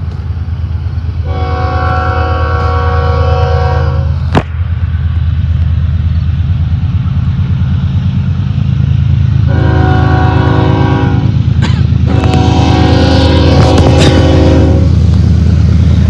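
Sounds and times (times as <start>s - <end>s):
diesel locomotives rumbling: 0.0s - 16.0s
multi-note train horn: 1.2s - 4.2s, 9.4s - 15.1s.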